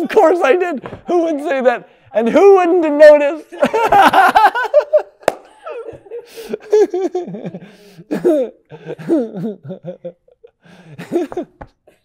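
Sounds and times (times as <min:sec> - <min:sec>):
man laughing: 0:03.6 - 0:11.6.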